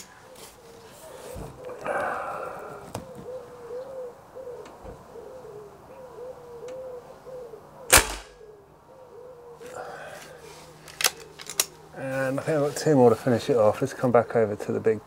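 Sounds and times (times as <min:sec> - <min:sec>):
bird calling: 0:00.0 - 0:14.8
air rifle shot: 0:07.9 - 0:08.4.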